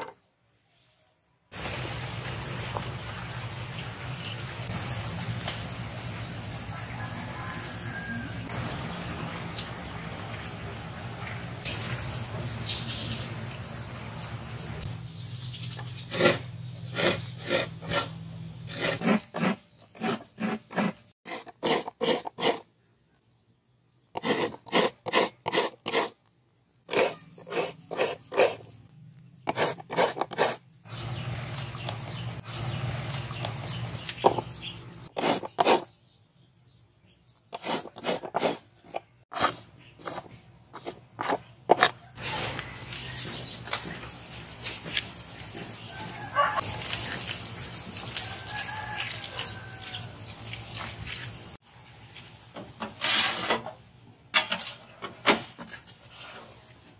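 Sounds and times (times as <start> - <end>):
coconut rasping on grater blade: 16.1 - 22.7, 24.2 - 26.2, 26.9 - 28.7, 29.5 - 30.6, 37.5 - 41.4.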